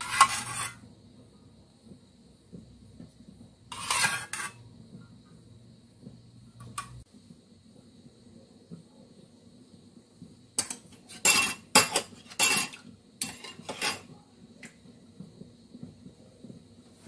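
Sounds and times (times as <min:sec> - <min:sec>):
fork scraping a glass bowl: 0:00.0 - 0:00.8, 0:03.7 - 0:04.6.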